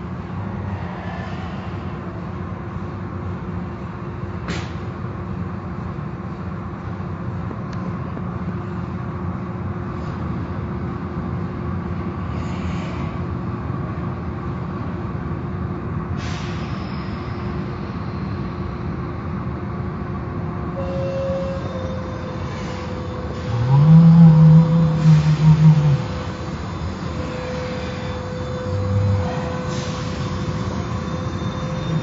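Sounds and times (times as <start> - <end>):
car wash machinery rumbling: 22.4 - 32.0.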